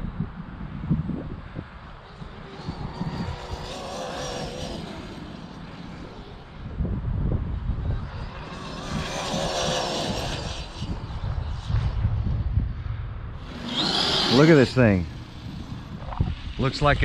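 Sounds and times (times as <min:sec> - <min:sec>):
electric motor whining: 0:02.0 - 0:06.8, 0:07.8 - 0:11.5, 0:13.4 - 0:16.6
low rumble: 0:14.7 - 0:17.0.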